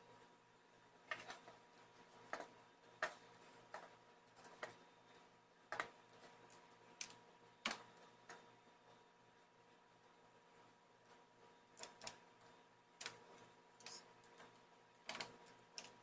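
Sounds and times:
keyboard and mouse clicks: 1.1 - 1.6, 2.3 - 4.8, 5.7 - 8.5, 11.1 - 16.0.

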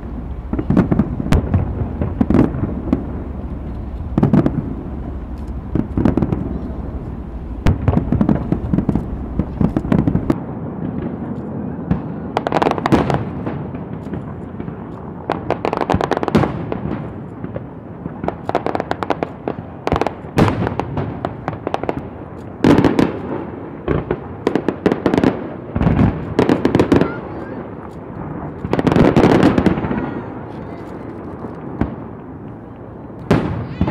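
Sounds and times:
low rumble: 0.0 - 10.4
fireworks bangs and pops: 0.0 - 33.9.

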